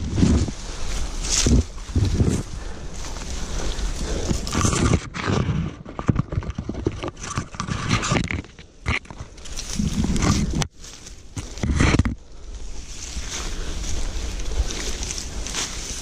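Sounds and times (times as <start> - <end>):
clothing scraping against tree bark: 0.0 - 12.2, 12.8 - 16.0
leaves and branches rustling: 0.0 - 16.0
knocks and rubbing on camera: 4.5 - 9.2, 11.6 - 12.2.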